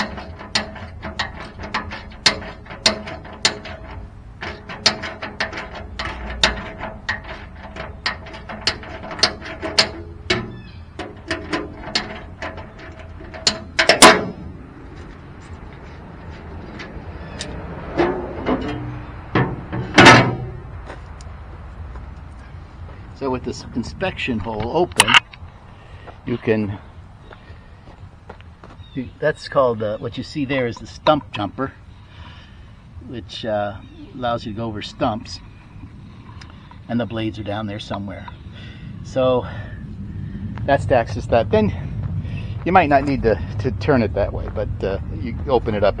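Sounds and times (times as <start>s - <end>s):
metal clanks: 0.0s - 21.3s, 23.5s - 25.4s.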